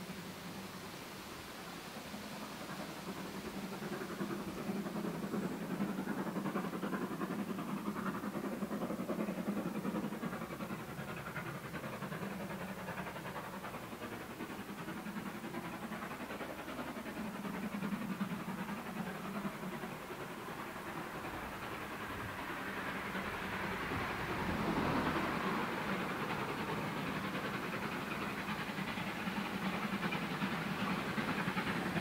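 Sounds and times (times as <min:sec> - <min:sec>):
distant steam locomotive exhaust: 0:00.0 - 0:32.0.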